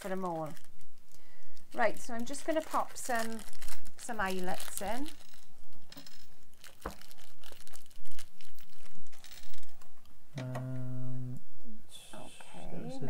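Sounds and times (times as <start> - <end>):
rustling and small clicks: 0.1 - 10.6
person humming: 10.4 - 13.0.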